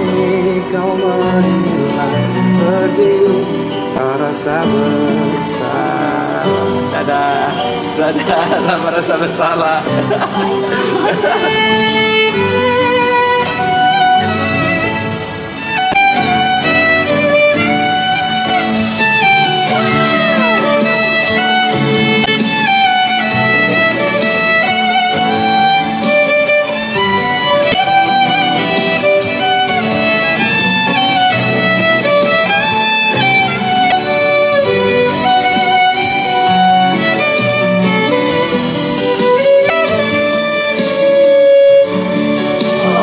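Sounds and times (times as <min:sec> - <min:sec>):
violin melody: 0:00.0 - 0:43.0.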